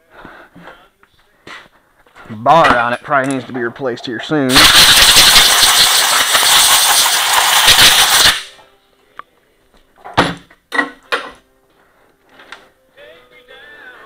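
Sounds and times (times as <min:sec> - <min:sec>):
compressed air hissing: 0:04.5 - 0:08.5
metal clanks on a workbench: 0:10.0 - 0:11.4.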